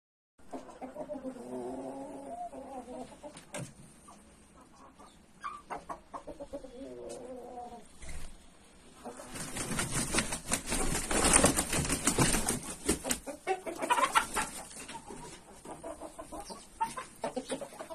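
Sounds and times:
rooster clucking calls: 13.2 - 17.9.

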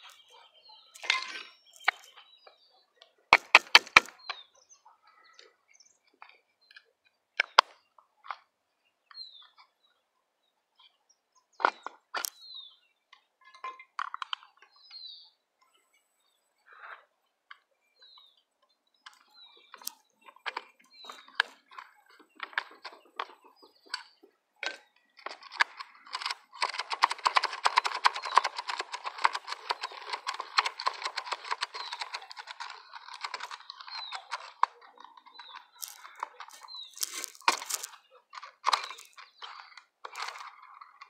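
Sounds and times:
trimmer line clicking on plastic spool: 24.7 - 34.7, 35.4 - 40.6.

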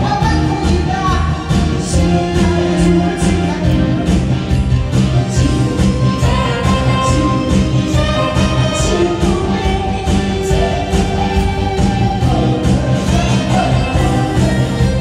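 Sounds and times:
backing track with steady beat: 0.0 - 15.0
woman singing into microphone: 5.4 - 11.3.

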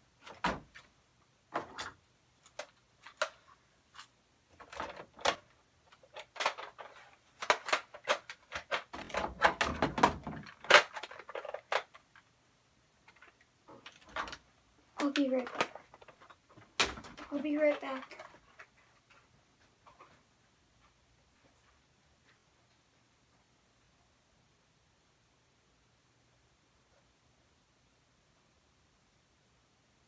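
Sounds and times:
objects being handled: 0.2 - 12.4, 13.0 - 22.5.

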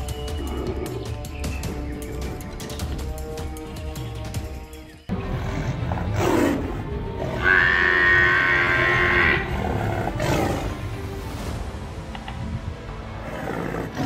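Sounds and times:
background music: 0.0 - 14.0
animal cries: 7.2 - 9.5.

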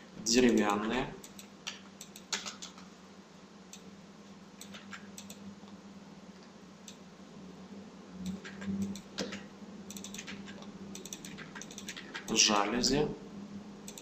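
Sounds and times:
faint low hum: 0.0 - 14.0
computer keyboard clicks: 0.4 - 2.8, 4.6 - 5.4, 8.2 - 12.4.

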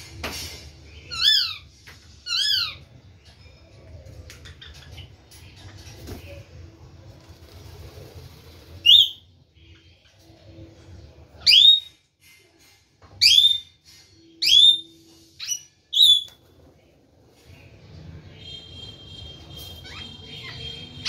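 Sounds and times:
parakeet shrill calls: 1.0 - 2.9, 8.8 - 9.3, 14.4 - 16.3, 19.6 - 21.0.

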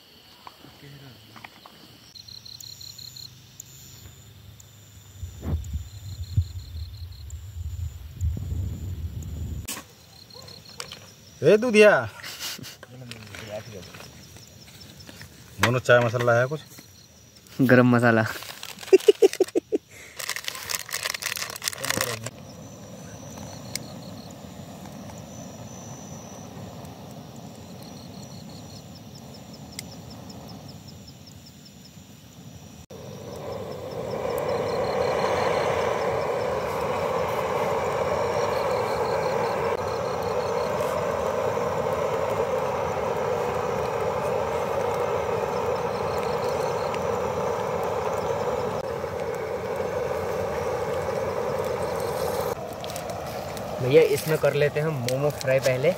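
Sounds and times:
packet tearing and crinkling: 18.3 - 22.3
camping stove burner roaring: 20.0 - 30.8, 32.9 - 55.9
faint chirps: 21.8 - 31.6, 32.9 - 55.9.

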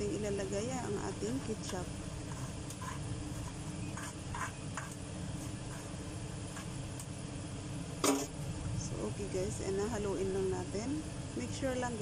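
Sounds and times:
steady low hum: 0.0 - 12.0
metal spoon scraping a bowl: 2.3 - 5.0.

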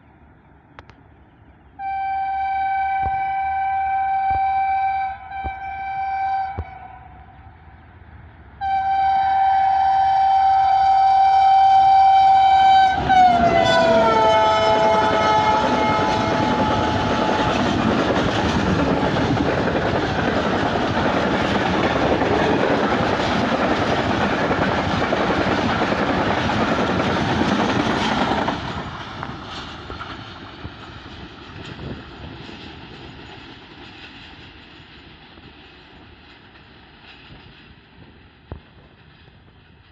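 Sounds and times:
locomotive horn blast: 1.8 - 7.6, 8.6 - 17.8
train wheels on rails: 3.0 - 39.9.

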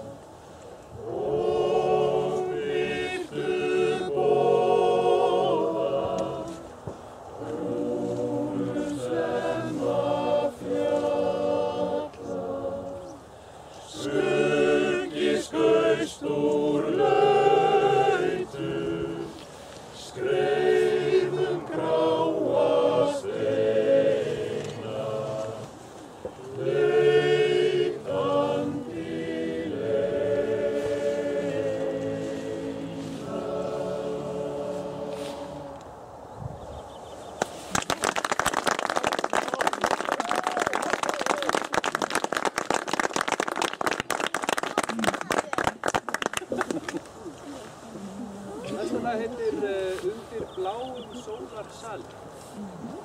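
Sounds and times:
male choir singing unaccompanied: 1.0 - 19.4, 20.0 - 25.8, 26.4 - 35.9.

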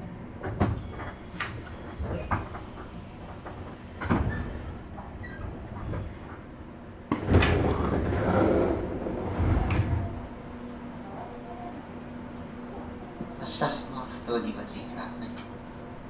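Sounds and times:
train doors opening with bang: 0.0 - 10.4.

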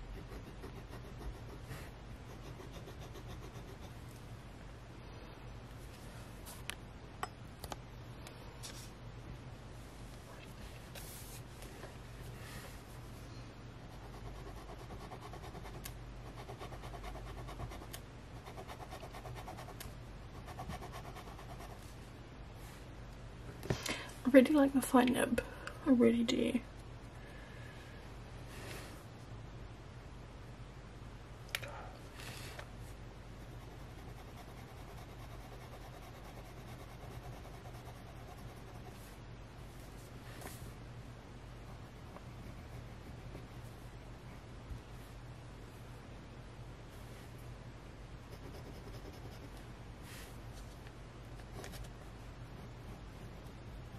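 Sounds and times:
low steady hum: 0.0 - 53.9
fountain pen scratching on paper: 0.2 - 4.0, 13.9 - 19.8, 20.4 - 21.8, 33.4 - 39.0, 48.3 - 49.5.

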